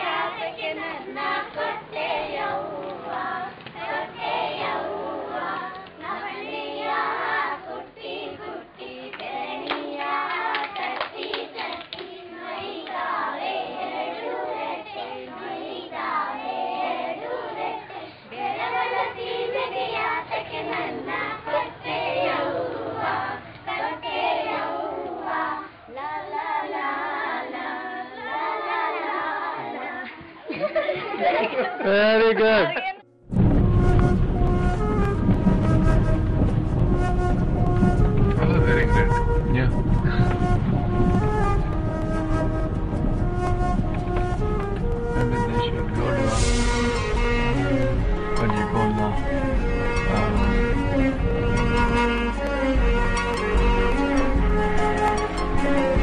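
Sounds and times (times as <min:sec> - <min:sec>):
girls singing together: 0:00.0 - 0:31.8
hand clapping: 0:09.1 - 0:12.1.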